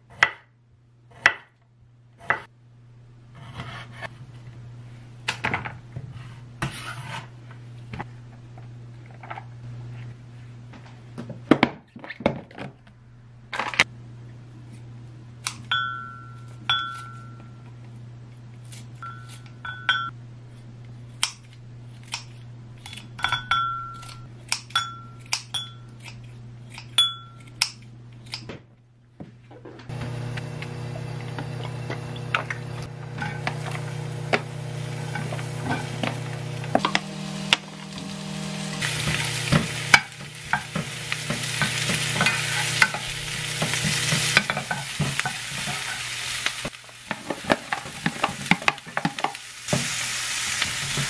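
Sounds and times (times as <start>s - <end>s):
kitchen scissors snipping: 21.2s - 23.4s, 24.0s - 28.5s
tongs and glass clinking: 39.9s - 46.0s.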